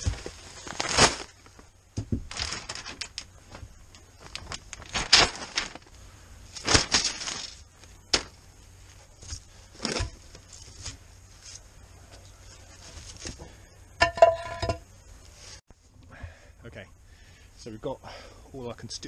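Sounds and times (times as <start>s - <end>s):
plastic rustling and crinkling: 0.0s - 13.6s.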